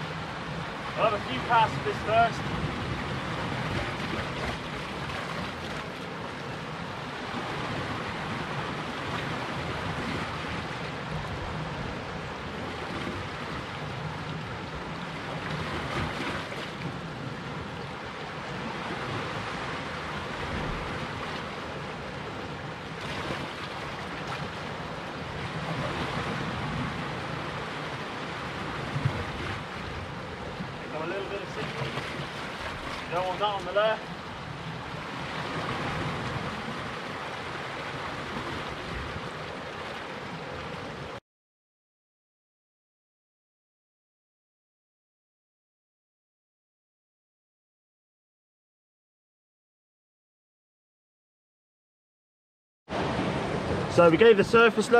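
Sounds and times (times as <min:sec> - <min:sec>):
surf breaking against rocks: 0:00.6 - 0:05.9, 0:30.8 - 0:34.1, 0:52.9 - 0:54.9.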